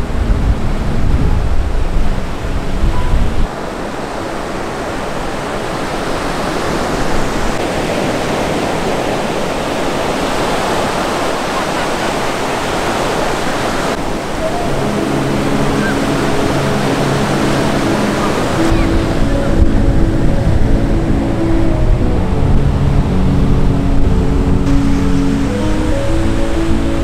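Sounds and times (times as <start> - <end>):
ocean surf breaking on beach: 0.0 - 27.0.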